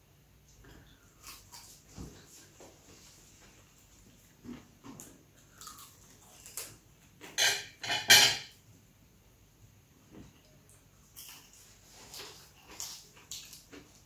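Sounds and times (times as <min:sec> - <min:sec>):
chewing mouth noises: 0:05.0 - 0:06.8, 0:10.7 - 0:14.0.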